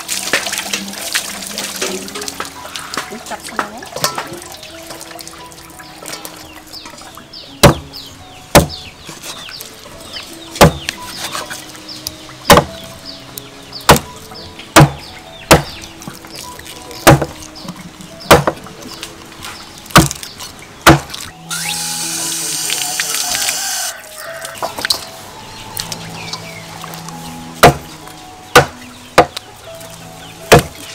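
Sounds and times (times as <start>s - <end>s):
cleaver chopping on wooden block: 7.6s - 7.9s, 8.5s - 8.8s, 10.6s - 11.4s, 12.5s - 12.8s, 13.9s - 14.1s, 14.8s - 15.8s, 17.0s - 17.4s, 18.3s - 18.6s, 19.9s - 20.2s, 20.8s - 21.2s, 27.6s - 27.9s, 28.5s - 29.4s, 30.5s - 30.8s.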